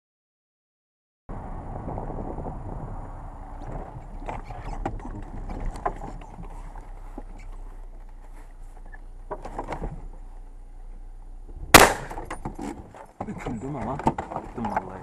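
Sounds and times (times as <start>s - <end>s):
low rumble: 1.3s - 13.0s
shotgun handling knocks and rustles: 11.8s - 14.9s.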